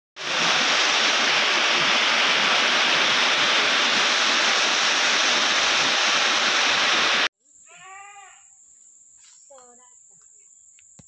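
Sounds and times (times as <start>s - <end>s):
loud rushing hiss: 0.2s - 7.3s.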